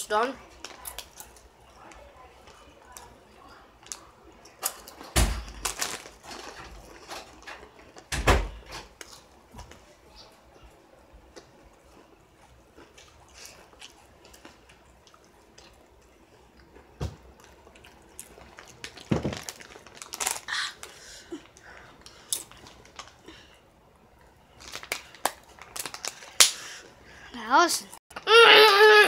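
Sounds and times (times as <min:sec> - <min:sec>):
person chewing potato chips: 0:03.8 - 0:08.1, 0:11.2 - 0:23.3, 0:24.6 - 0:26.8
bag crinkling: 0:05.5 - 0:07.4, 0:18.3 - 0:21.0, 0:24.6 - 0:26.4.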